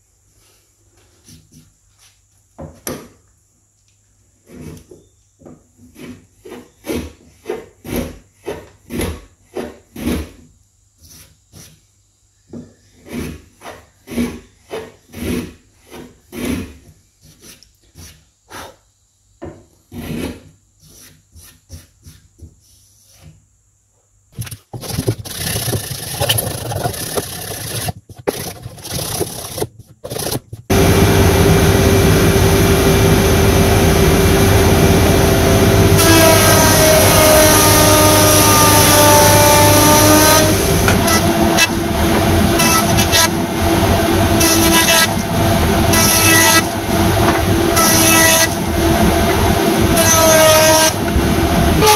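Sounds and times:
hand plane shaving wood: 13.0s - 17.6s, 24.7s - 30.8s, 33.1s - 43.4s, 44.1s - 51.2s
hand rasping wood: 24.8s - 30.6s
jointer running with whine: 30.7s - 51.9s.

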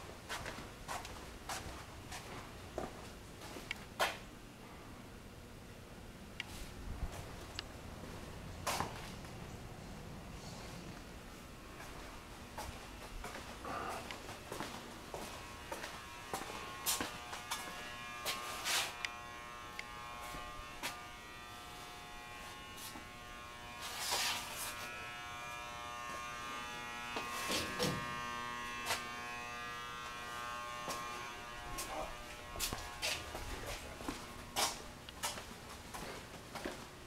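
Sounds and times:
electrical buzz: 6.5s - 36.0s.

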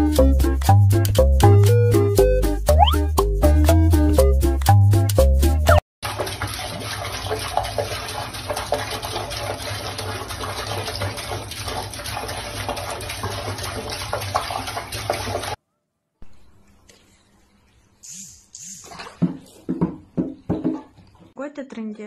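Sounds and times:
faucet water splashing into basin: 6.0s - 15.6s, 18.3s - 20.0s.

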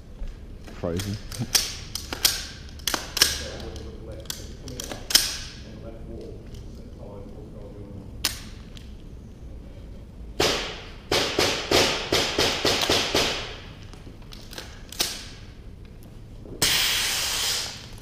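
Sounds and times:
airsoft gun shots echoing: 10.4s - 13.7s
smoke grenade hiss: 16.6s - 18.0s.

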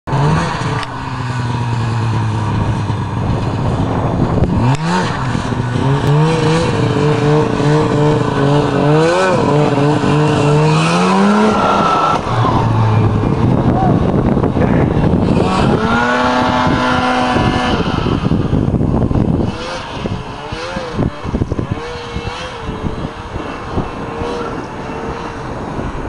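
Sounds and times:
snowmobile engine revving: 0.1s - 26.0s.

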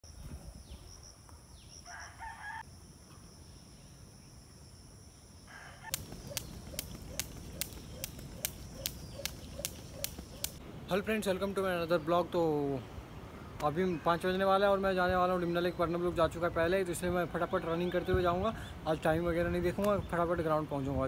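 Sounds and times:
rooster crowing: 1.8s - 2.7s, 5.5s - 6.0s
skipping rope slapping ground: 5.9s - 10.6s.

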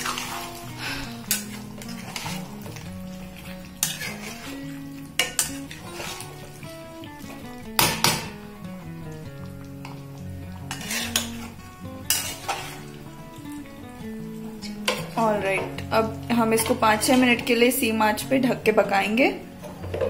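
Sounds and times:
spatula scraping metal pan: 0.0s - 2.8s, 3.4s - 6.6s, 10.6s - 13.0s
soft background music: 0.0s - 20.0s.

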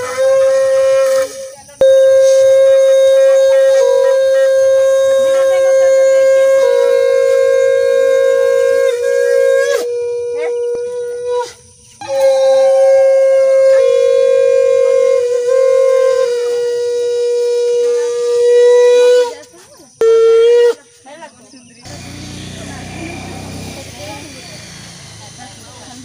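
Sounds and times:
conch shell blasts: 0.0s - 19.4s.

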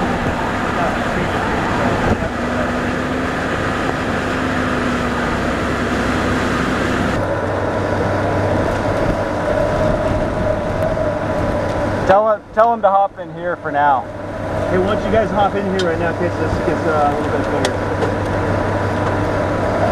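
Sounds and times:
wind rushing through car window: 0.0s - 12.8s
low engine hum: 0.0s - 19.9s.

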